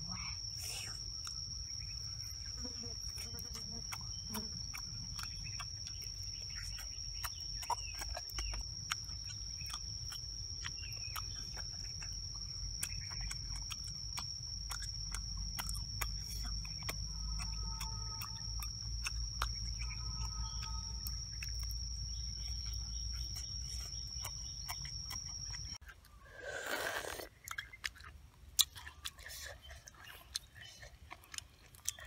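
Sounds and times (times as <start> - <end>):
high-pitched insect drone: 0.0 - 25.8
clicks and smacks of eating oysters: 3.3 - 21.9, 27.0 - 32.0.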